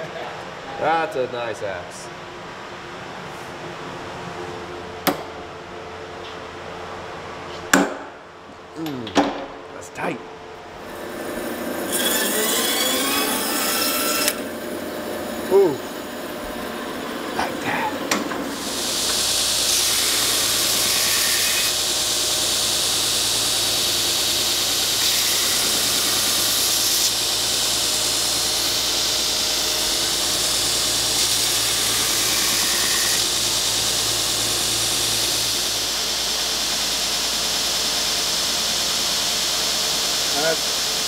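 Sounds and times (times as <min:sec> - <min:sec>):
belt sander sanding wood: 0:10.9 - 0:41.0.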